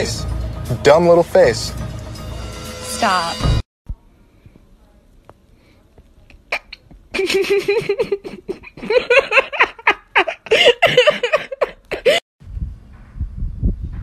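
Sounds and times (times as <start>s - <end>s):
breaths: 4.1s - 4.7s, 5.5s - 6.0s
person laughing: 6.6s - 12.2s.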